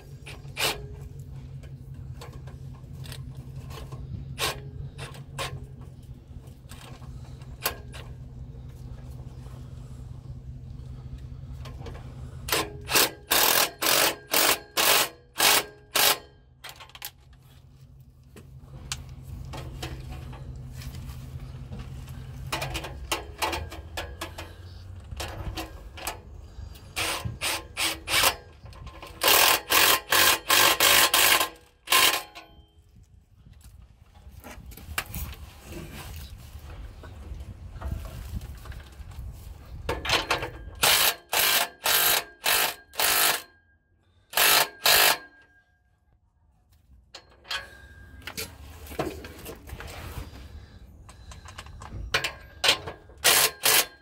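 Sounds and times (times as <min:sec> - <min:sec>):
steady low hum: 0:00.0 - 0:54.0
hand ratchet clicking: 0:12.5 - 0:17.2, 0:27.0 - 0:32.5, 0:40.1 - 0:43.5, 0:44.3 - 0:45.4, 0:53.2 - 0:54.0.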